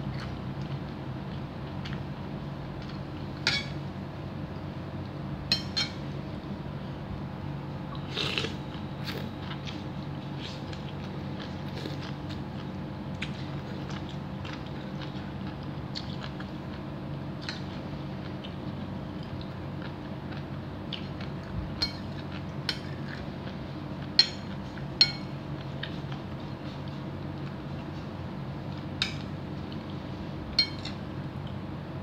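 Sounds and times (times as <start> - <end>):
steady low hum: 0.0 - 32.0
soft chewing: 7.9 - 31.7
spoon clinking against bowl: 24.2 - 25.3, 30.6 - 31.0.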